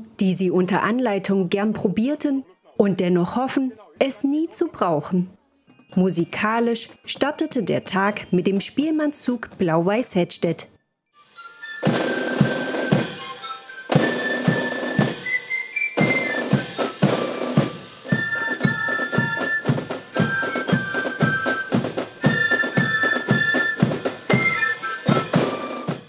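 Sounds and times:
fife melody: 11.3s - 26.0s
snare and bass drum: 11.8s - 13.3s, 13.9s - 15.4s, 16.0s - 26.0s.

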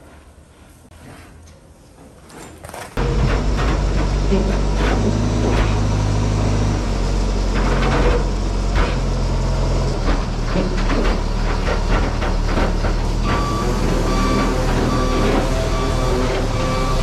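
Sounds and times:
knocks and clanks: 2.1s - 17.0s
farm machine engine running: 3.0s - 17.0s.

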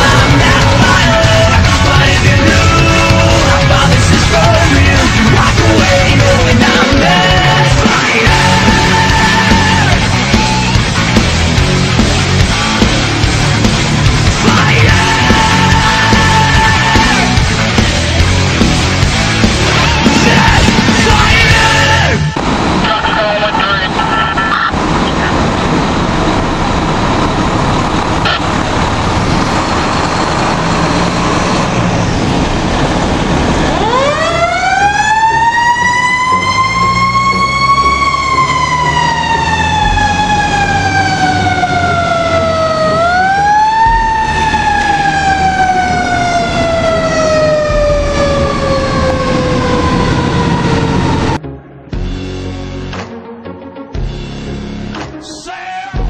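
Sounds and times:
steady rushing noise: 0.0s - 34.1s
fire truck siren wailing: 0.0s - 52.0s.

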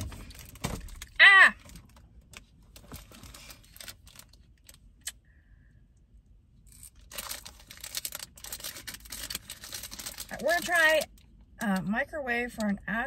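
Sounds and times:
plastic wrapper crinkling: 2.7s - 4.9s, 6.7s - 11.3s.

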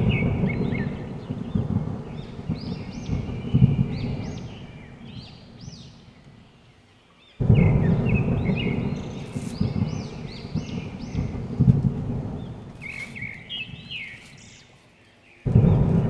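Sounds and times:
low rumbling noise: 0.0s - 6.7s, 7.4s - 16.0s
birds chirping: 0.0s - 16.0s.

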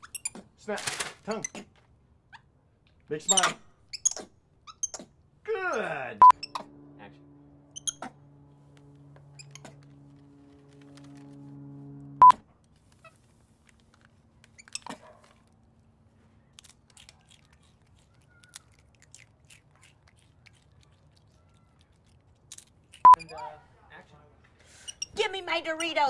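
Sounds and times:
steady low hum: 5.2s - 12.7s
high electronic beep: 6.2s - 6.8s, 7.6s - 8.2s
monkey chewing crunchy chip: 16.4s - 23.1s.

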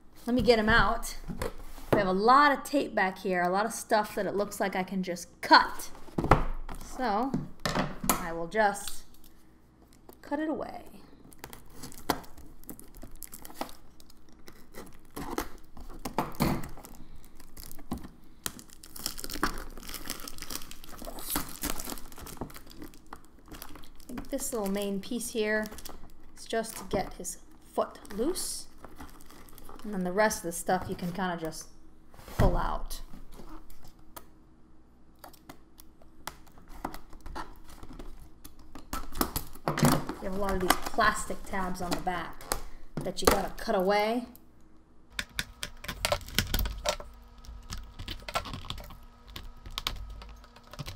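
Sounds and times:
cardboard box and packaging rustling: 11.2s - 27.2s, 28.1s - 30.0s
tape tearing and crinkling: 11.3s - 24.8s, 28.7s - 29.9s.

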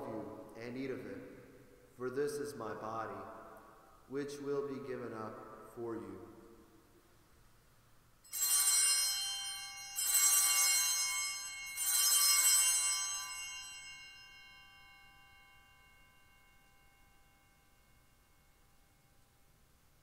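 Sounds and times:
altar bells ringing: 8.3s - 19.2s.

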